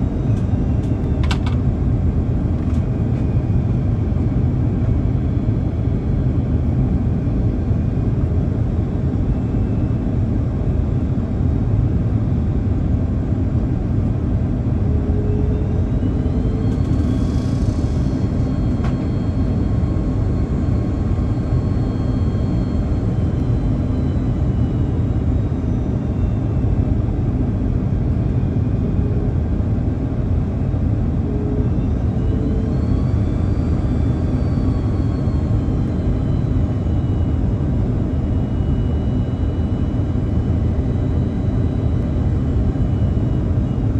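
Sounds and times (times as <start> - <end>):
airplane cabin rumble: 0.0 - 43.9
faint high whines: 12.3 - 43.9.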